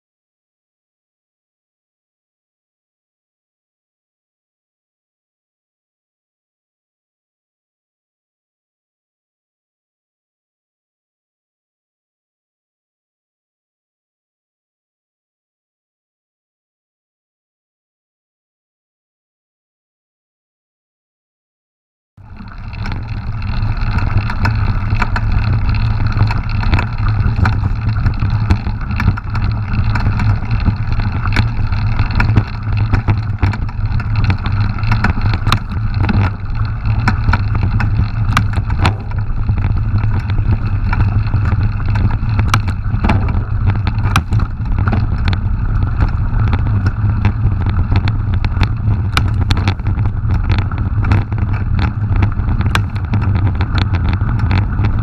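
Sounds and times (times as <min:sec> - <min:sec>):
gravel and bike rattles: 0:22.2 - 0:55.0
wind and tyre rumble: 0:22.2 - 0:55.0.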